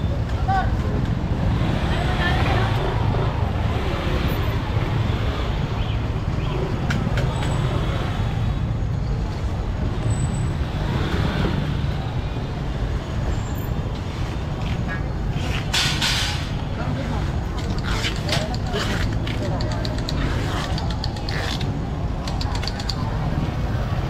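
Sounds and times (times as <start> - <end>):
traffic rumbling: 0.0 - 24.0
indistinct chatter: 16.4 - 24.0.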